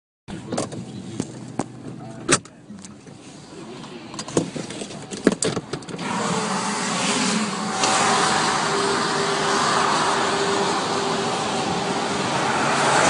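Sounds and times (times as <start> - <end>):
tyre noise on wet road: 2.8 - 13.0
wind rushing: 6.0 - 13.0.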